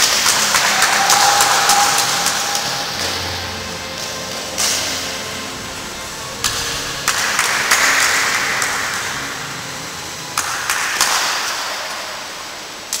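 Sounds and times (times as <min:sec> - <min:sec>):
applause: 0:00.0 - 0:03.3, 0:10.4 - 0:12.0
sharp separate claps: 0:00.0 - 0:03.4, 0:10.4 - 0:12.2.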